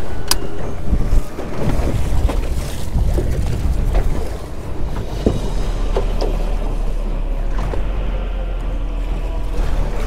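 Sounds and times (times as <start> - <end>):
choppy water against boat: 0.0 - 10.0
low rumble: 0.0 - 10.0
wind buffeting microphone: 0.0 - 10.0.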